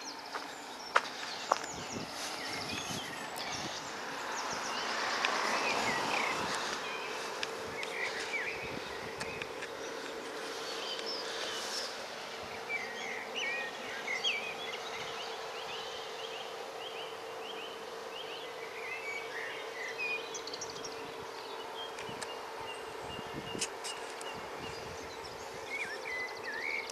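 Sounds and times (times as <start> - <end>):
faint steady drone: 0.0 - 26.9
songbirds singing: 0.0 - 26.9.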